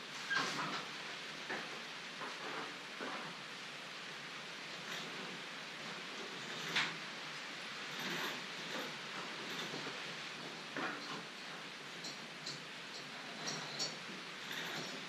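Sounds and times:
knocks and clinks of pulley: 12.0s - 15.0s.

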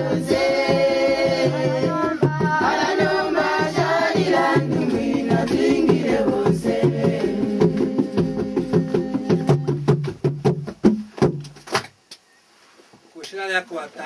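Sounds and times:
congregation singing a hymn: 0.0s - 9.6s
hand drums: 0.0s - 11.7s.

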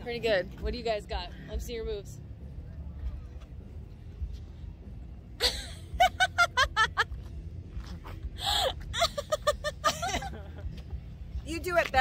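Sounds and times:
high-pitched laughter: 8.9s - 10.6s.

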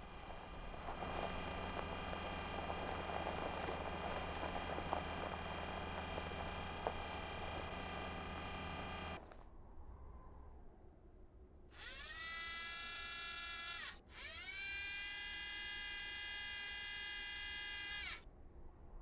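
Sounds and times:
motor whir and hum: 0.0s - 9.2s, 11.8s - 18.2s
wheels crunching over gravel: 0.0s - 9.4s.

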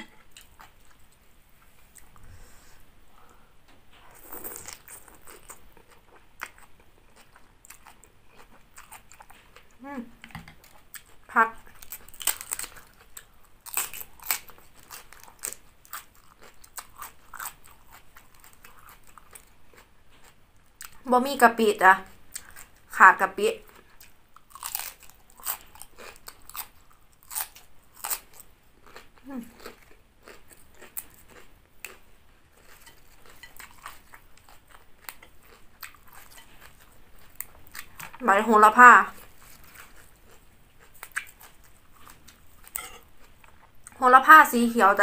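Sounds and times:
chewing cabbage crunches: 4.1s - 9.9s, 10.6s - 21.1s, 23.6s - 38.2s, 39.0s - 44.0s.

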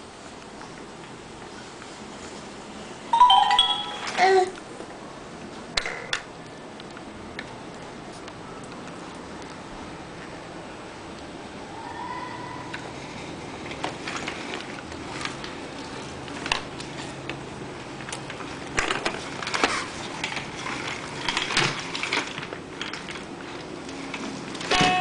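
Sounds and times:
baby walker rattling and knocking: 18.7s - 25.0s.

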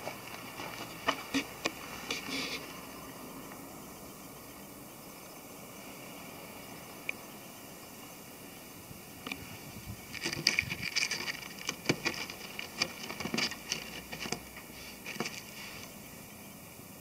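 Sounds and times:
crumbly wood crackling: 9.2s - 16.0s.

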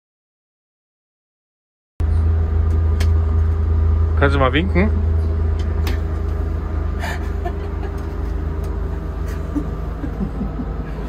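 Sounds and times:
steady hum: 2.0s - 11.0s
train rumbling on track: 2.0s - 11.0s.

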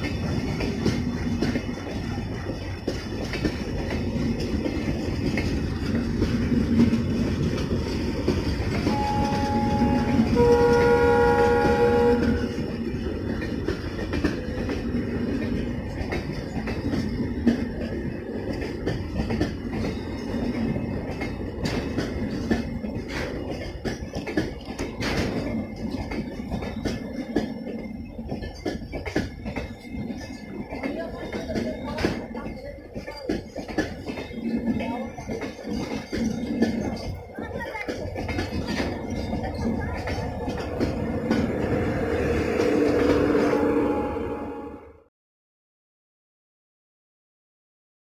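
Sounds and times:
train rumble and wheel clatter: 0.0s - 45.1s
locomotive horn: 8.8s - 12.6s, 42.6s - 45.1s.

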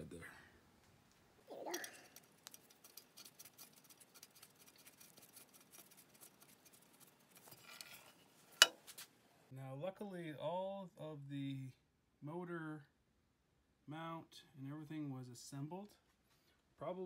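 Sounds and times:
small metal clicks and scrapes: 1.7s - 9.0s.

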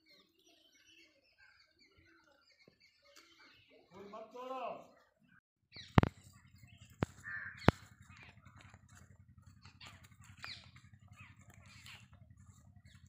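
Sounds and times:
birds calling: 0.0s - 5.0s, 5.7s - 13.0s
sharp clicks: 5.9s - 9.1s.

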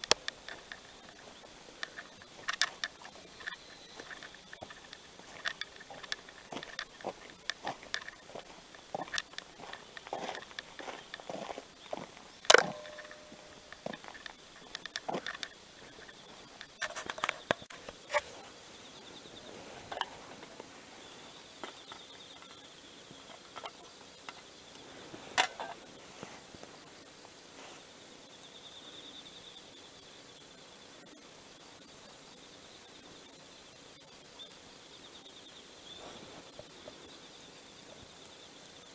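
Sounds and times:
clicks and knocks of gear: 0.0s - 18.3s.

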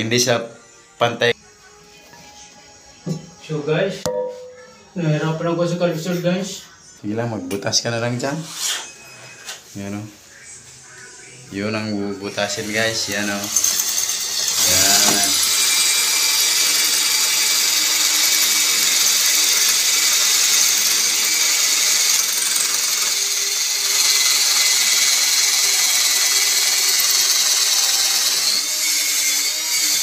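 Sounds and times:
drill grinding into tile: 12.2s - 30.0s.

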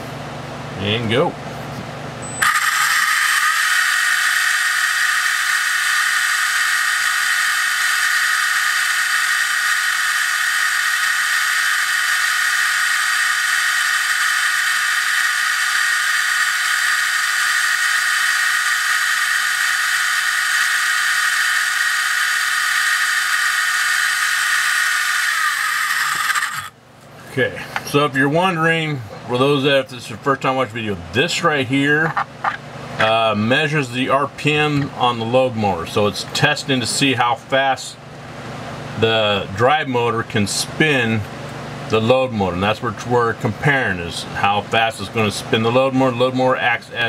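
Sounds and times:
high-pitched electric motor whine: 2.2s - 26.8s.

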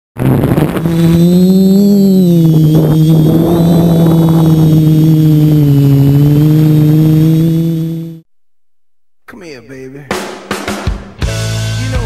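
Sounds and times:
drone propellers humming: 0.2s - 8.2s.

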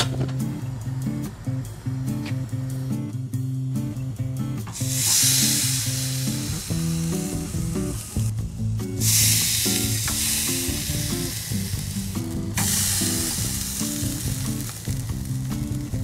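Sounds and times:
background music: 0.0s - 16.0s
fish sizzling on a grill: 4.8s - 8.3s, 9.0s - 16.0s.

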